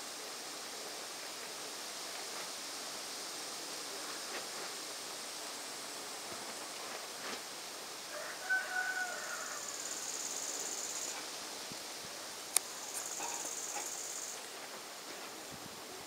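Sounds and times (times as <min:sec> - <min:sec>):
high steady hiss: 0:00.0 - 0:16.0
outdoor hiss: 0:00.0 - 0:16.0.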